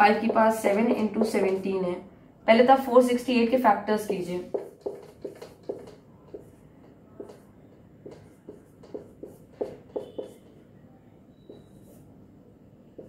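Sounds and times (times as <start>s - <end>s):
marker writing on whiteboard: 0.0s - 1.8s, 3.9s - 10.7s, 11.4s - 12.2s.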